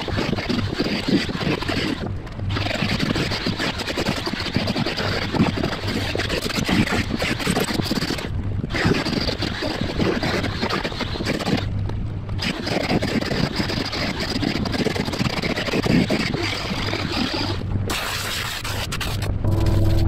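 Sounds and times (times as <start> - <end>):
steady hum with tones: 0.0 - 7.2, 17.4 - 20.0
die grinder grinding fibreglass: 0.0 - 11.7, 12.4 - 20.0.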